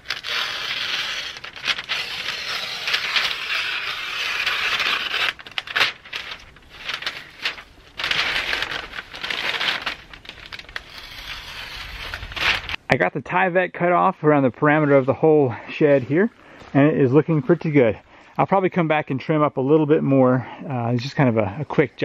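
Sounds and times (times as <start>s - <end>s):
house wrap tearing and crinkling: 0.0s - 12.8s.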